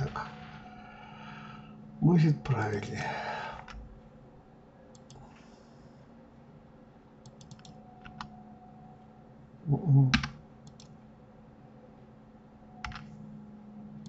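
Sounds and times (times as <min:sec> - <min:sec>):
keyboard and mouse clicks: 0:04.9 - 0:05.2, 0:07.2 - 0:08.3, 0:10.1 - 0:11.0, 0:12.8 - 0:13.1.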